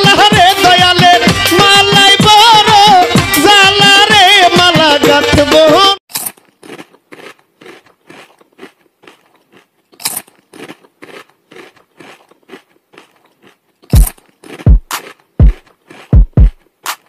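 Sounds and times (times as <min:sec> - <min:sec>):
crunchy chewing: 0:06.1 - 0:17.0.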